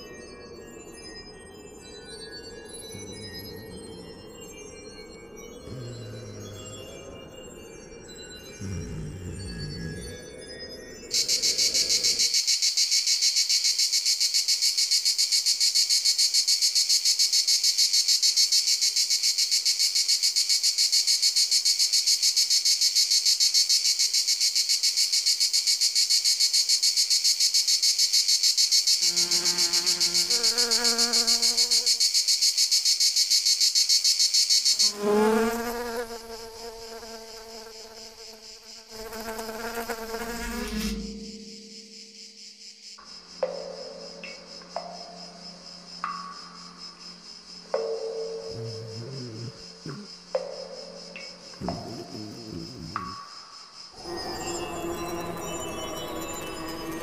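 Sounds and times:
cricket trilling: 0.0s - 57.0s.

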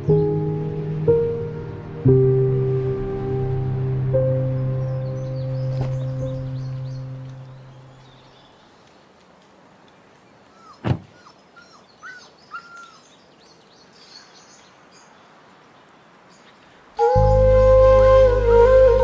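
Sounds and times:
birds chirping: 0.0s - 1.5s, 4.2s - 9.1s, 9.9s - 19.0s
background music: 0.0s - 7.8s, 17.0s - 19.0s.

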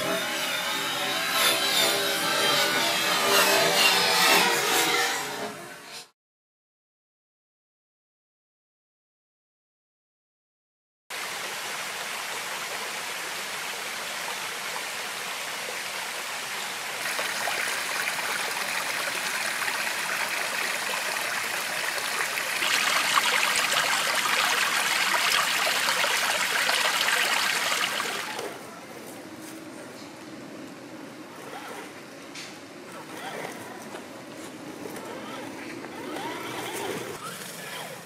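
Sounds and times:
stream water rushing over rocks: 11.2s - 28.5s.

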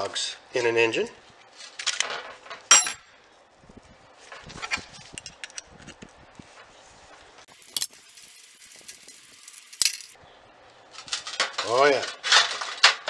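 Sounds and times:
small metal clicks and clinks: 7.7s - 10.2s.

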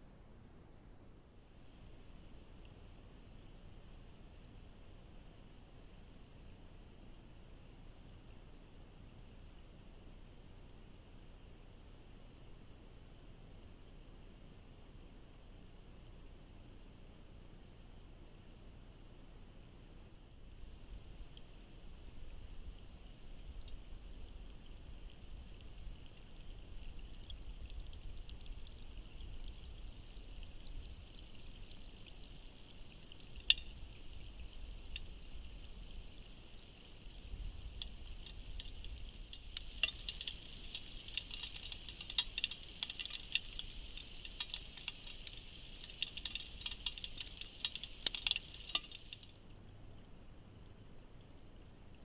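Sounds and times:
faint steady hiss: 0.0s - 52.0s
rain pattering on water: 20.4s - 49.6s.

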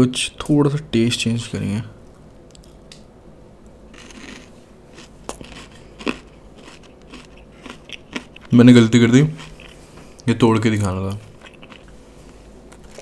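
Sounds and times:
chewing crunchy sweet: 3.9s - 10.2s, 11.3s - 13.0s.

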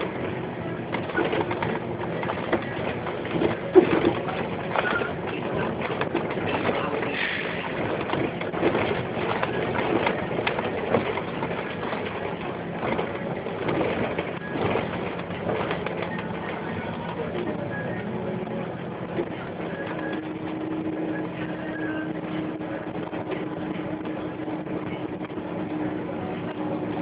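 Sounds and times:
body rattles and knocks: 0.0s - 17.6s
bus running noise: 0.0s - 27.0s.

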